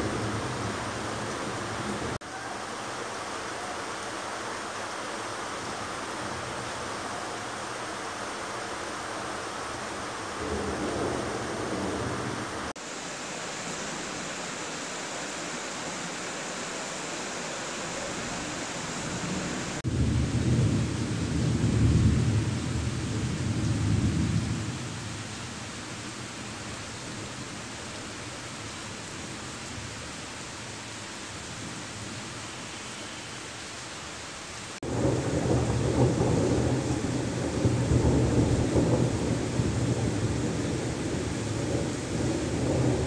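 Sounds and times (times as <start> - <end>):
steady rain falling: 0.0 - 43.0
thunder rumbling: 10.4 - 12.8, 18.2 - 24.8, 34.8 - 43.0.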